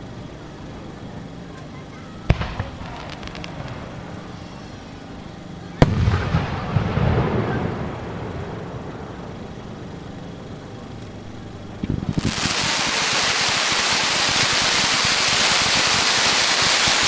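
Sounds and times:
firework bangs: 2.2 - 9.6, 11.8 - 17.0
firework crackles: 2.2 - 11.0, 11.6 - 17.0.

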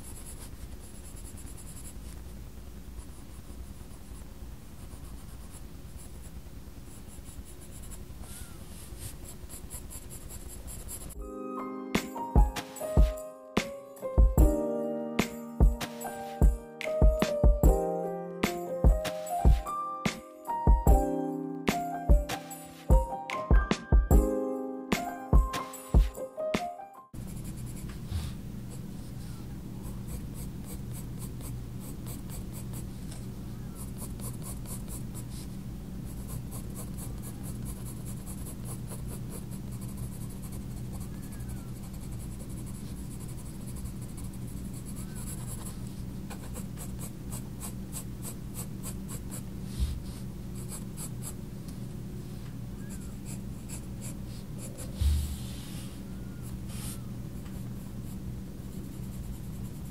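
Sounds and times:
coloured pencil scratching on paper: 0.0 - 11.2, 27.2 - 51.4, 52.8 - 59.9
steady low hum: 27.2 - 59.9.

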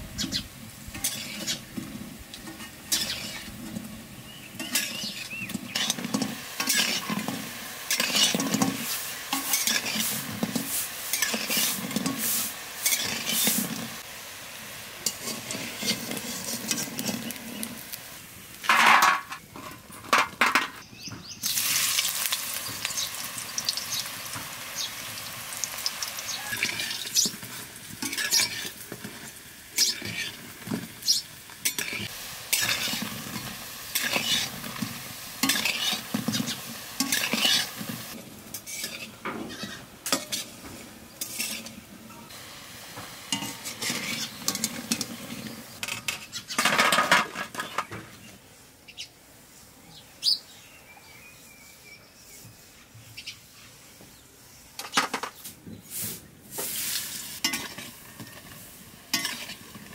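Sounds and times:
oil sizzling: 0.0 - 20.7, 21.3 - 48.0, 55.9 - 59.9
skimmer scraping metal pan: 0.9 - 4.0, 4.6 - 14.0, 15.0 - 17.8, 26.4 - 29.2, 29.8 - 40.6, 41.2 - 42.3, 43.3 - 47.9.

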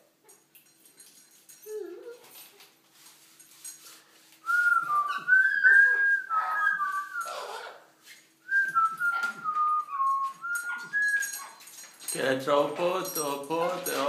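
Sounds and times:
parrot whistling a tune: 4.5 - 7.7, 8.5 - 11.4.

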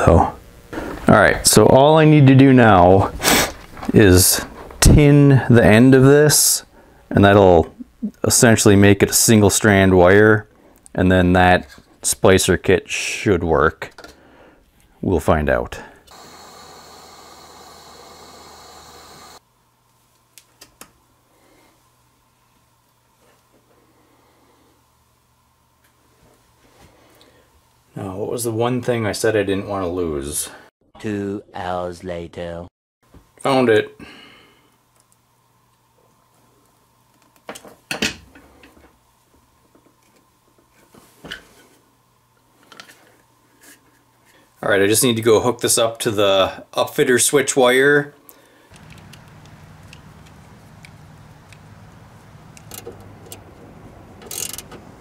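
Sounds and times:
faint steady hum: 0.0 - 30.6, 38.2 - 55.0
steady hiss: 15.8 - 19.4, 44.4 - 55.0.

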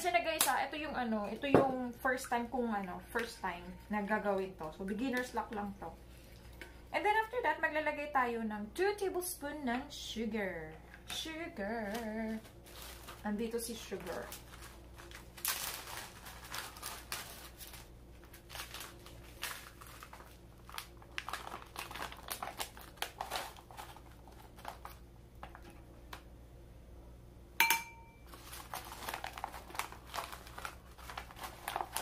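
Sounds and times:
plastic packaging crinkling: 11.8 - 25.8, 28.2 - 32.0
sharp ringing clink: 27.6 - 28.2.

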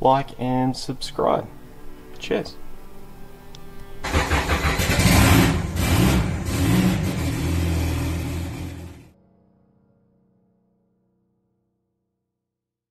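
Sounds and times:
car engine starting and revving: 4.0 - 9.1.

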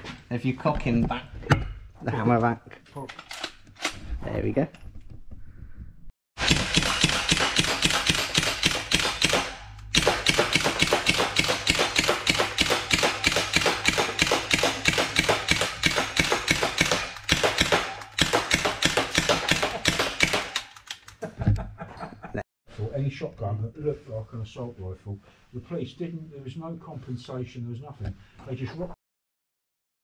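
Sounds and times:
submachine gun firing rapid bursts: 6.4 - 20.8.

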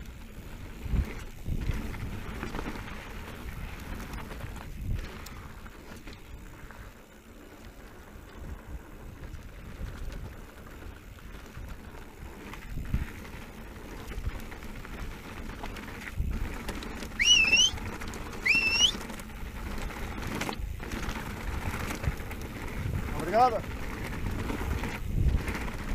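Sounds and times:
wind on camera: 0.0 - 6.7, 8.3 - 25.9
short rising squeals: 17.2 - 17.8, 18.4 - 19.0.

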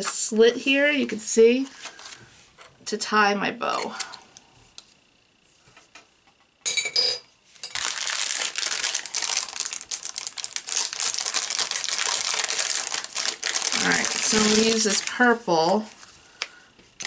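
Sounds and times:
plastic bag crinkling: 7.6 - 16.0.

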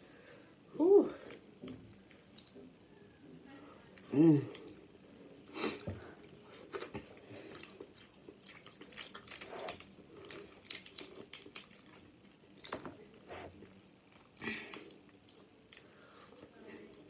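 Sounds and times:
eating sounds: 4.0 - 17.0
crab shells cracking: 7.6 - 12.9, 13.7 - 15.4.

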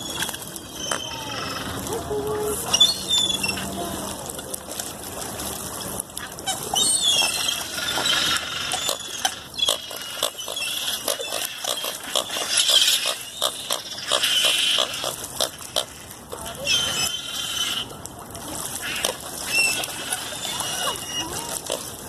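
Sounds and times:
ducks clicking and clucking: 5.9 - 22.0.

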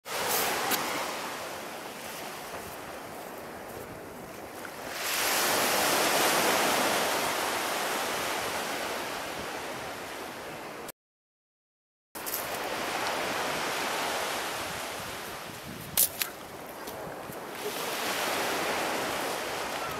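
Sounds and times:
surf breaking on sandy beach: 0.0 - 4.1, 4.7 - 9.9, 17.1 - 19.9.

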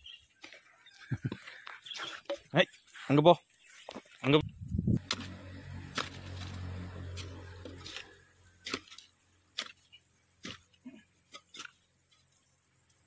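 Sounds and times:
hoe chopping into stony soil: 5.0 - 11.9.

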